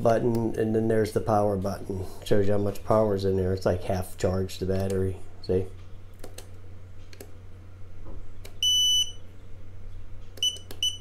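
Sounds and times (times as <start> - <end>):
transmitter beeping: 8.5 - 9.2, 10.4 - 11.0.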